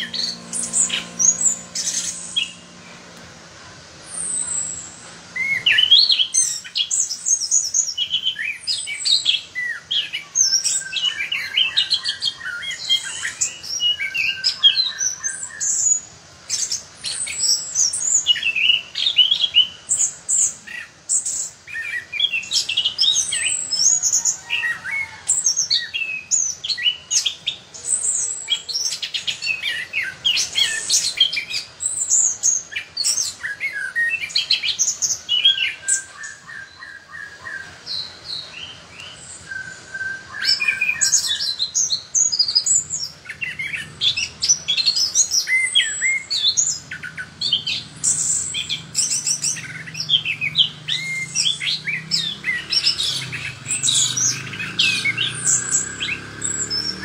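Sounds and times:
bird singing whistled phrases: 5.4s - 20.1s, 38.6s - 57.0s.

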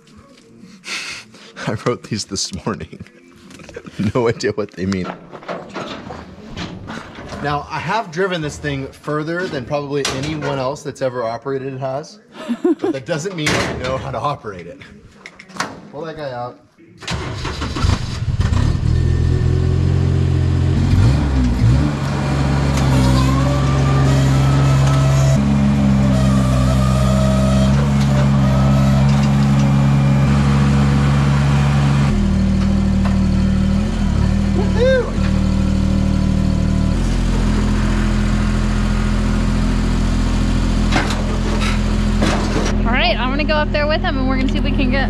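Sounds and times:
scissor lift engine running: 21.3s - 45.0s.

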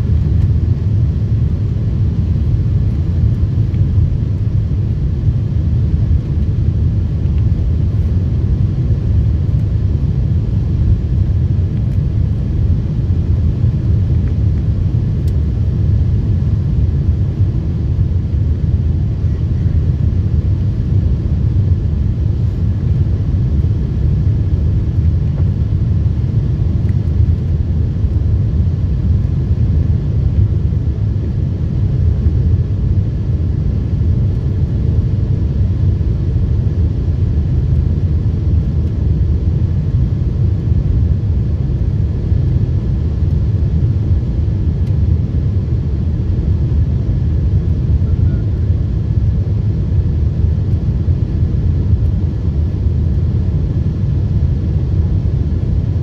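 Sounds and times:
jet cabin engine rumble: 0.0s - 56.0s
faint high whine: 41.1s - 49.8s.

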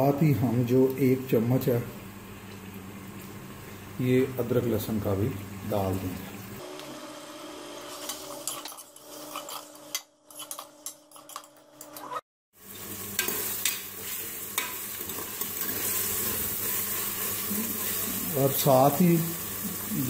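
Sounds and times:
oil sizzling: 6.3s - 10.9s, 12.5s - 20.0s
metal spoon scraping pot: 7.9s - 12.2s.

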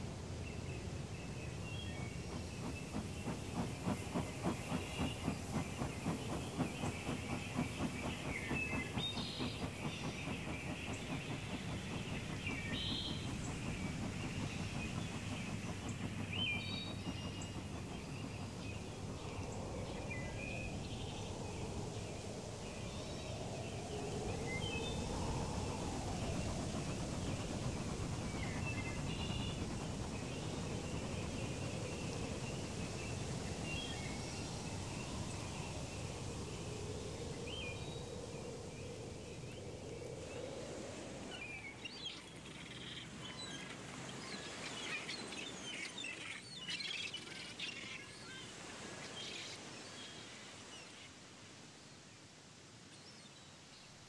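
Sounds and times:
birds chirping: 1.2s - 40.4s.

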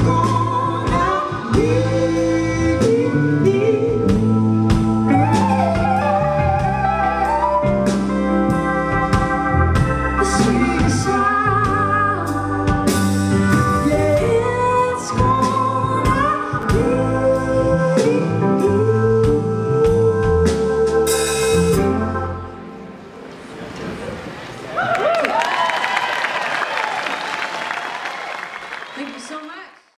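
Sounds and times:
woman singing: 0.0s - 6.4s, 10.2s - 12.8s, 13.6s - 22.1s
live band playing: 0.0s - 24.4s.

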